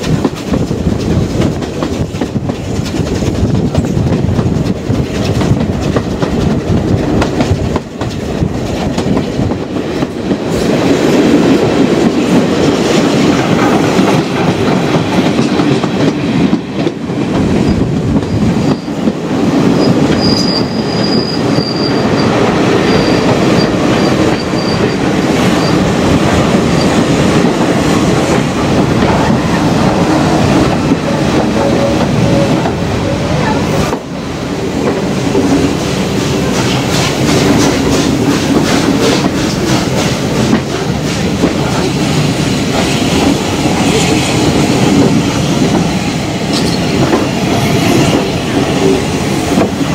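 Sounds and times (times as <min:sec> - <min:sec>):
train wheels clattering on rails: 0:00.0 - 0:49.9
high thin brake squeal: 0:20.2 - 0:22.2, 0:22.9 - 0:24.9.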